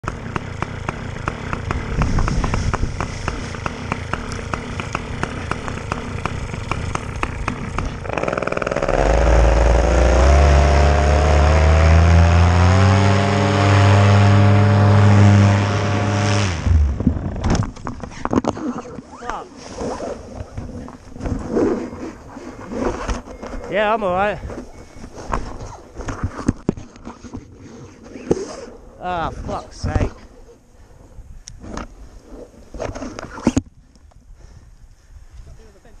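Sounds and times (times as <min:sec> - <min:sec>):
paramotor engine and propeller: 0:00.0 - 0:23.6.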